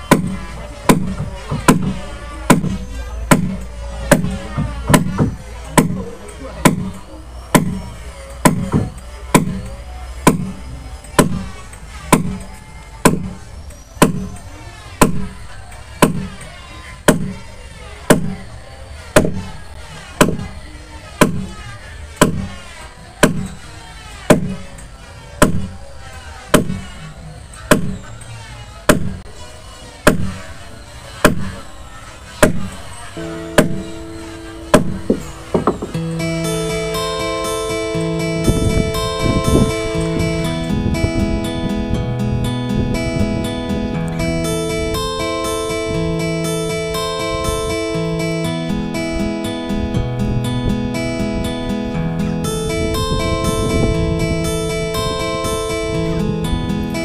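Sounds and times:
hammer pounding iron rod: 0.0s - 10.6s, 11.2s - 13.4s, 14.0s - 14.3s, 15.0s - 15.4s, 16.0s - 16.4s, 17.1s - 17.4s, 18.1s - 18.4s, 19.2s - 19.5s, 20.2s - 20.5s, 21.2s - 21.6s, 22.2s - 22.5s, 23.2s - 23.6s, 24.3s - 24.7s, 25.4s - 25.8s, 26.5s - 26.9s, 27.7s - 28.0s, 28.9s - 29.2s, 30.1s - 30.4s, 31.2s - 31.6s, 32.4s - 36.1s
background music: 33.2s - 57.0s.

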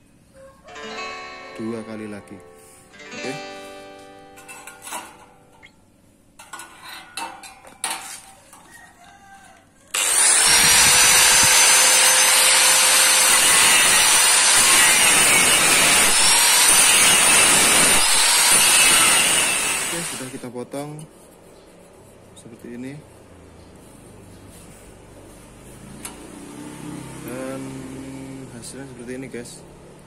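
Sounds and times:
angle grinder cutting steel: 9.9s - 20.4s.

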